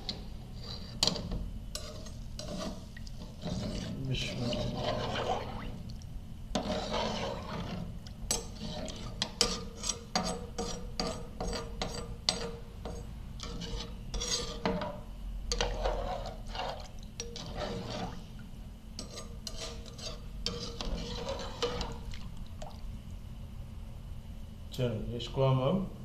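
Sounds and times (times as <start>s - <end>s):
metal spoon scraping a pot: 0.0s - 5.8s, 6.5s - 18.2s, 19.0s - 22.1s.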